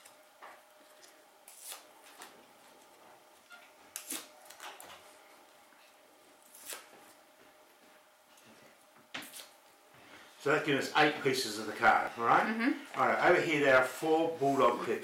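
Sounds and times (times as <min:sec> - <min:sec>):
card tearing: 0:01.5 - 0:01.9, 0:04.0 - 0:04.6, 0:06.5 - 0:06.9.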